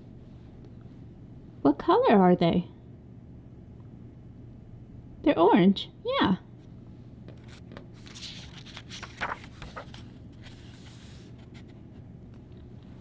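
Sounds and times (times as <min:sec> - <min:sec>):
faint steady hum: 0:00.0 - 0:13.0
paper rustling and sliding: 0:07.3 - 0:12.5.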